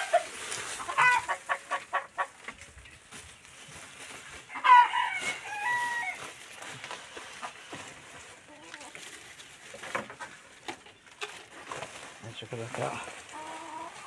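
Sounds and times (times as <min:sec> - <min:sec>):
chicken drawn-out call: 0:00.0 - 0:02.4, 0:04.4 - 0:06.4, 0:13.3 - 0:14.0
chickens clucking: 0:00.0 - 0:14.0.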